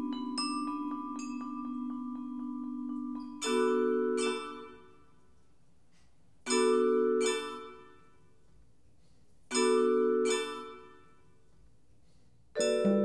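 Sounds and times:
vibraphone chords ringing: 0:00.0 - 0:05.1, 0:12.6 - 0:13.0.

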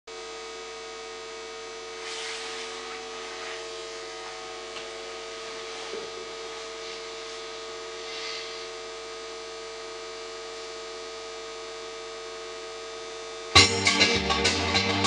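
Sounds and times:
electrical hum: 0:00.1 - 0:15.0
faint hiss: 0:01.9 - 0:03.7, 0:08.0 - 0:08.8.

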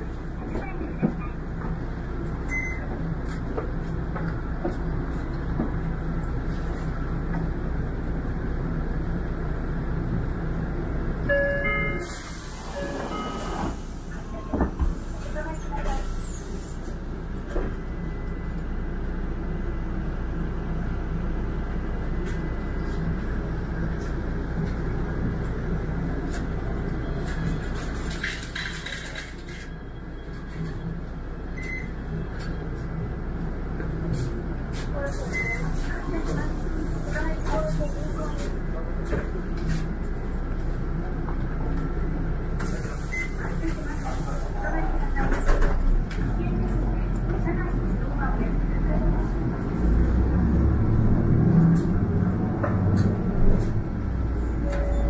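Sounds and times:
hiss: 0:12.0 - 0:14.2
vehicle low rumble: 0:12.5 - 0:55.0.

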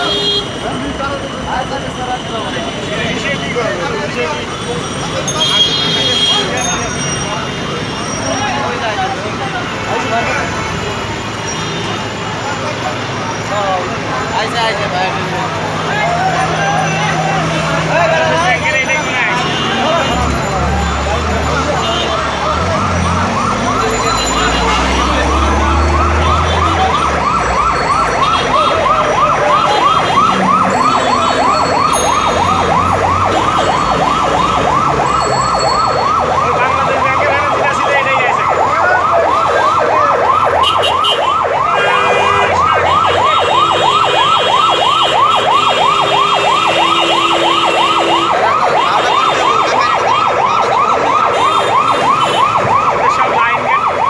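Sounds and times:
siren yelping: 0:15.7 - 0:54.0.

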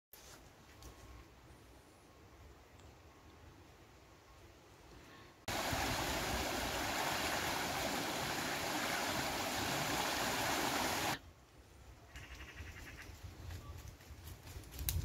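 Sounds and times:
stream rushing over a log: 0:05.5 - 0:11.2.

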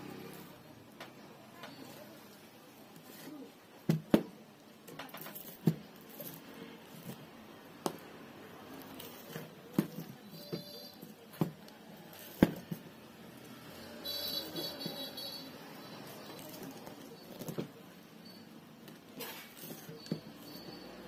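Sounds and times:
wire scraping and rustling: 0:04.9 - 0:07.4, 0:08.6 - 0:11.3, 0:18.9 - 0:21.0.

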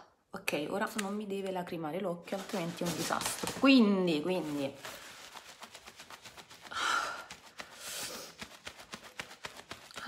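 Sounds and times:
woman gasping: 0:06.7 - 0:08.4.

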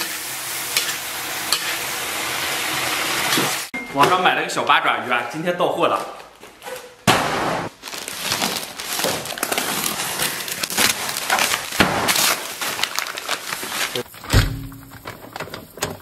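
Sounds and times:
packing tape ripping: 0:07.7 - 0:14.2
foil bag crinkling: 0:07.7 - 0:15.4.

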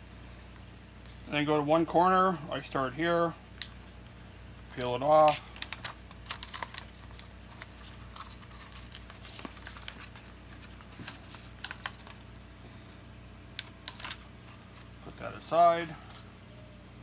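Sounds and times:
steady low hum: 0:00.0 - 0:17.0
paper rustling: 0:05.2 - 0:12.3, 0:13.6 - 0:14.9.

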